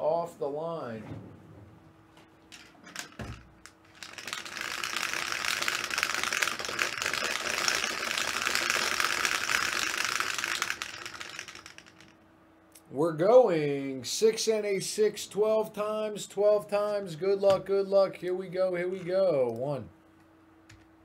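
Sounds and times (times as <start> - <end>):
dice rattling in plastic dome: 2.5 - 12.2.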